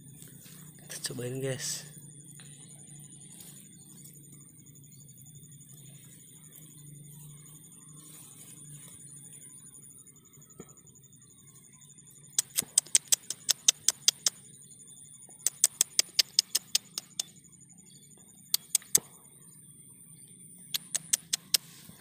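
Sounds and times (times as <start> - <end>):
sharp high clicks: 12.3 - 14.4, 15.4 - 17.4, 18.5 - 19.2, 20.6 - 21.7.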